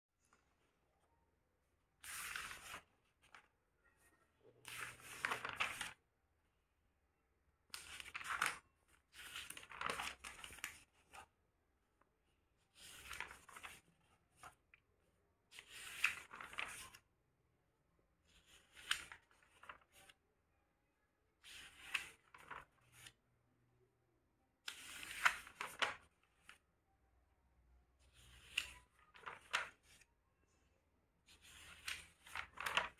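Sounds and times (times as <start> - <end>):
notebook pages turning: 2.0 - 6.0, 7.7 - 11.3, 12.7 - 14.8, 15.5 - 17.0, 18.3 - 20.2, 21.4 - 23.2, 24.7 - 26.6, 28.0 - 30.1, 31.3 - 32.9.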